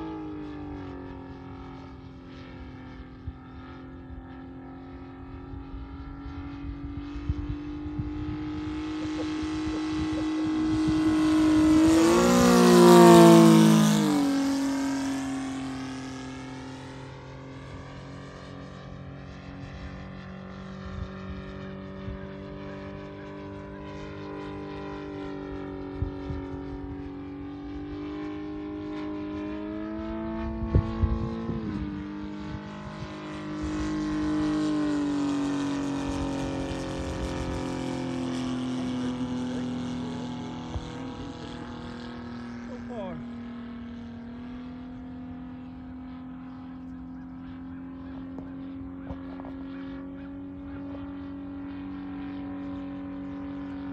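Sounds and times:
model airplane engine fly-by: 0.0 - 53.9.

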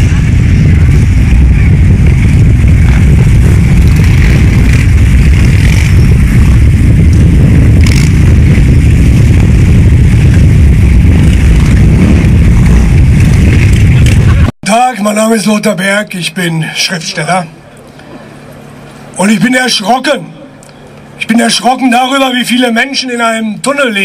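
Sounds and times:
motorcycles rumbling past: 0.0 - 14.4.

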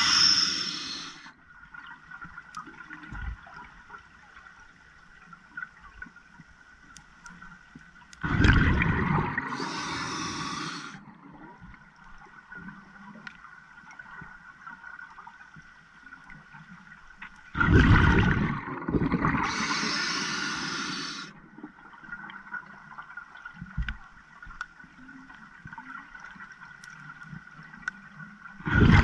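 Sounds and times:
faint clicks: 4.4 - 8.2, 13.1 - 14.3, 23.6 - 28.2
underwater bubbles gurgling: 7.7 - 29.0.

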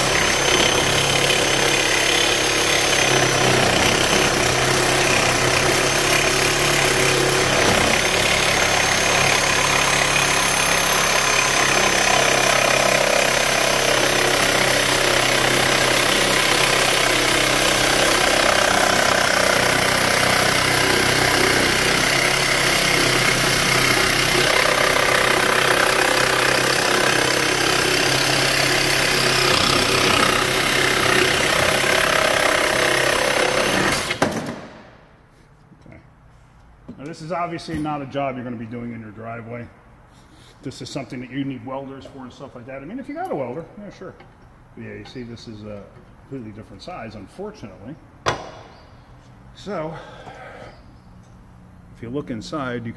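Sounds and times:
reciprocating saw cutting metal pipe: 0.0 - 34.3.

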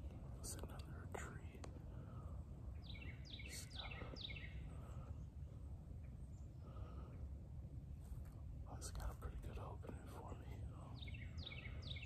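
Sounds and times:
low background rumble: 0.0 - 12.0
small bird chirping: 2.7 - 5.3, 10.3 - 12.0.

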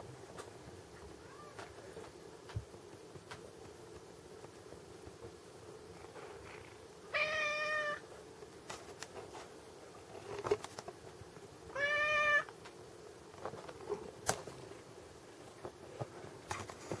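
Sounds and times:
cat meowing: 7.1 - 8.0, 11.7 - 12.5.

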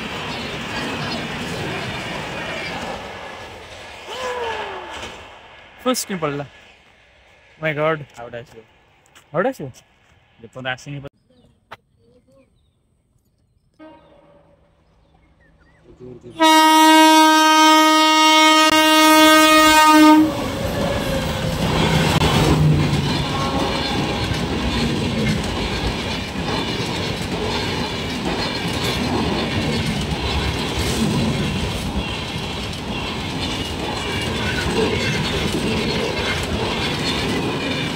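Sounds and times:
train horn blast: 13.8 - 14.8, 16.3 - 21.3, 23.2 - 24.2
train wheels clattering past: 18.7 - 37.9.

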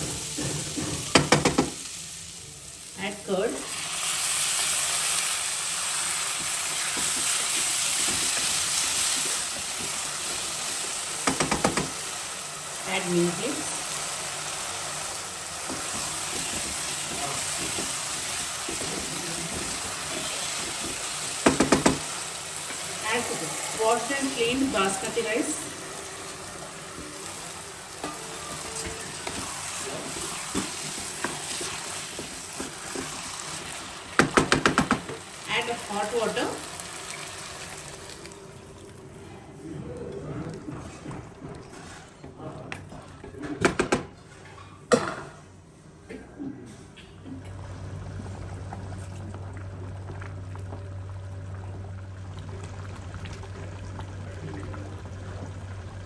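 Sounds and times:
curd sizzling in hot oil: 0.0 - 39.2
wooden spatula stirring in pan: 5.9 - 12.7, 13.4 - 38.2.

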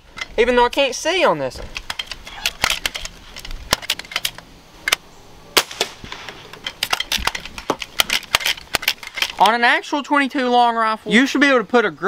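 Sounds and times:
air rifle shot crack: 5.5 - 6.6.

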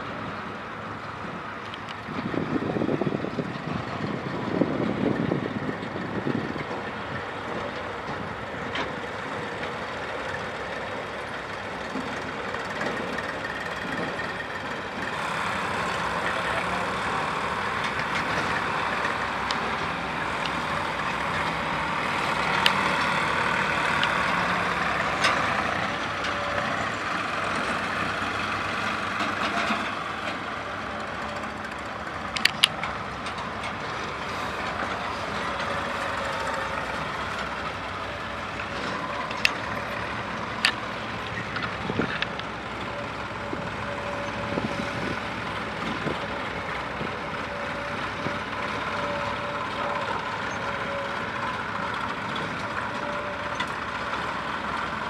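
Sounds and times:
tractor engines droning: 0.0 - 55.0.

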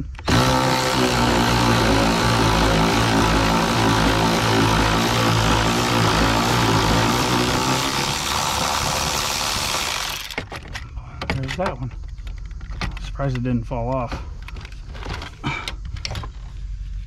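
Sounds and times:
power tool motor running: 0.0 - 10.4.

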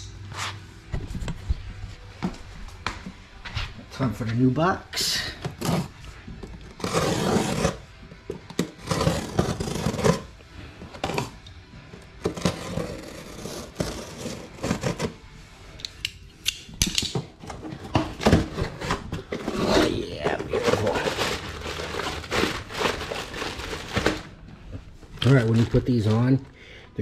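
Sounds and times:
cardboard box being opened: 17.8 - 24.3
plastic wrapping handled: 18.6 - 24.5, 25.2 - 26.5.

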